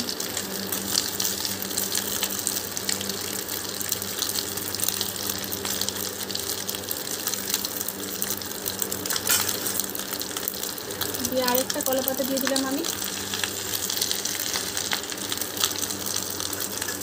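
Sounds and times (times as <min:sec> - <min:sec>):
oil sizzling in a frying pan: 0:00.0 - 0:17.0.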